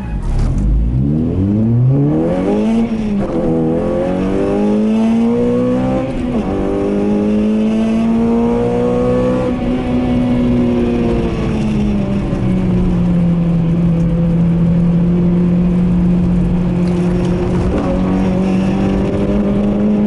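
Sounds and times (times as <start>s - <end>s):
car engine accelerating hard: 0.0s - 20.0s.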